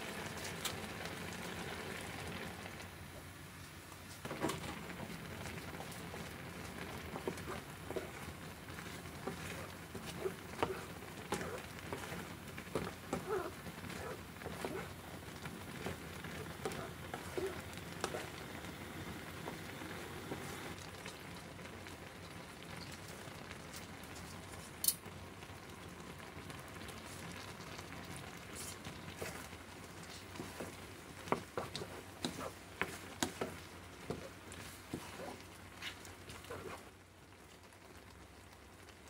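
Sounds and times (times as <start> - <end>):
sauce bubbling and sizzling: 0.0 - 39.0
wooden spatula scraping pan: 4.2 - 18.5, 28.5 - 36.9.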